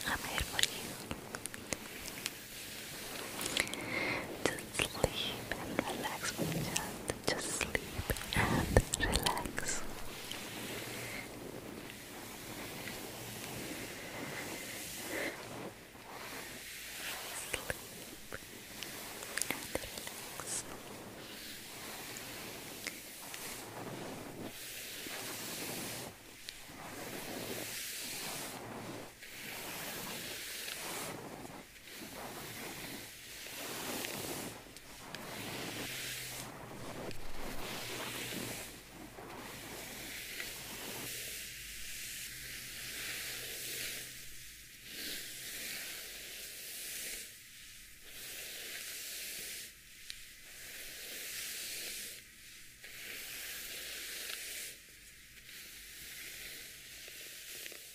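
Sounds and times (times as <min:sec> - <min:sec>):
hairbrush scratching microphone: 0:00.0 - 0:47.4, 0:48.0 - 0:52.2.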